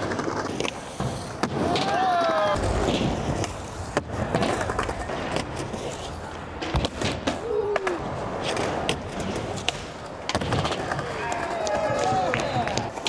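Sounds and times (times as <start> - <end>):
skateboard clacks: 0.0 - 13.0
skateboard wheels rolling: 0.0 - 13.0.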